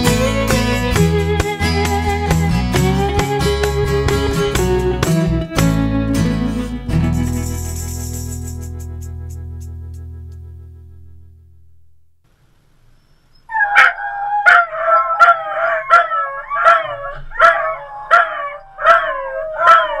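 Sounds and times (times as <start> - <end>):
dogs baying: 13.5 - 20.0.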